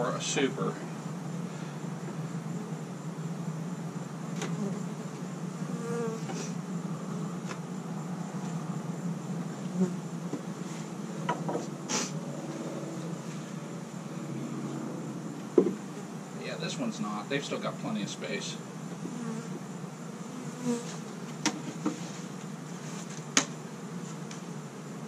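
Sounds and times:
honeybees buzzing: 0.0 - 25.0
hive frames knocking: 15.5 - 15.9, 21.3 - 22.0, 23.3 - 23.6.

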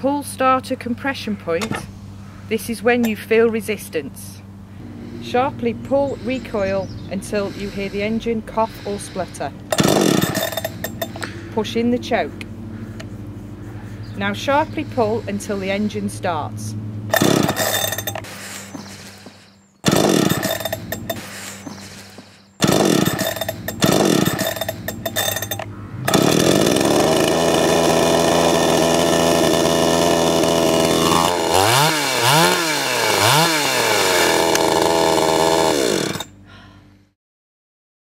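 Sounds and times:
chainsaw idling and revving: 4.8 - 11.4, 17.1 - 36.4
chainsaw pull-start: 9.7 - 11.3, 17.1 - 36.4.

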